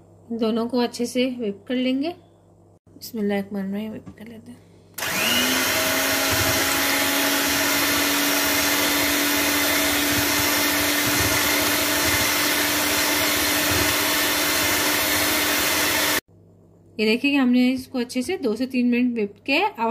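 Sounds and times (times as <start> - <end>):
electric hand mixer whirring: 5.0 - 16.2.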